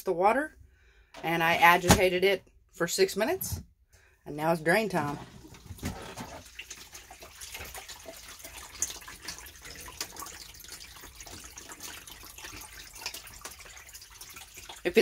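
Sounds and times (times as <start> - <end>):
water draining onto floor: 5.2 - 15.0.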